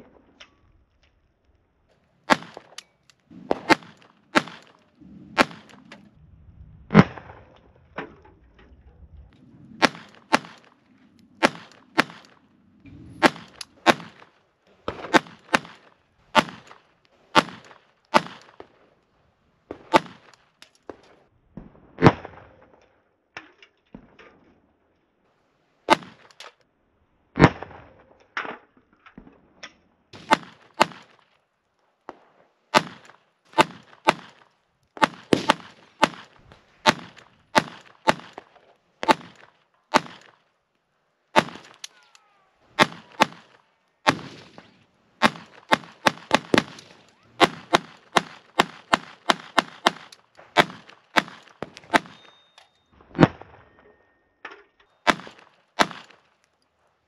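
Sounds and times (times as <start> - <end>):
pistol shots: 2.3 - 6.0, 9.8 - 10.8, 11.4 - 12.4, 13.1 - 14.3, 14.9 - 18.7, 19.7 - 21.0, 25.9 - 26.4, 30.2 - 31.2, 32.1 - 40.4, 41.3 - 42.0, 42.7 - 52.4, 55.0 - 56.3.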